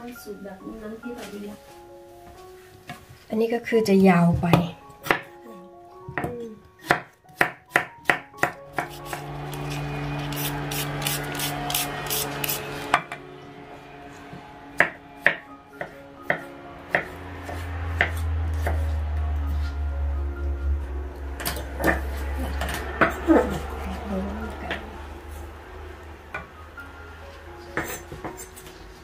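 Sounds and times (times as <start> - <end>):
knife chopping on cutting board: 6.2 - 9.3, 14.8 - 18.8
low hum: 8.6 - 27.7.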